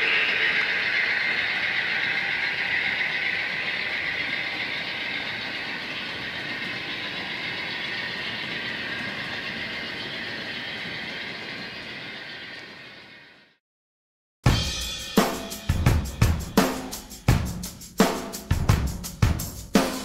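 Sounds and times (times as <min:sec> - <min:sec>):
model train rushing on track: 0:00.0 - 0:13.6.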